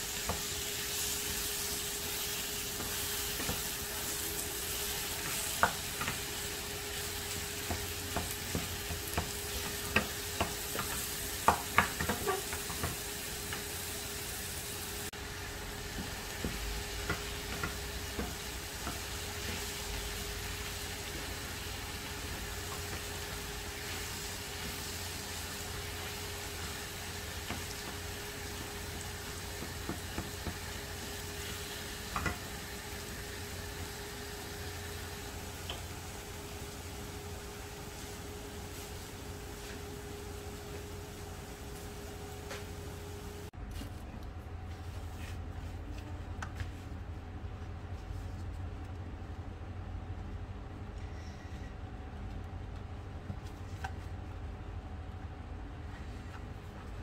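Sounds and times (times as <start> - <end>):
food sizzling in a frying pan: 0.0 - 43.5.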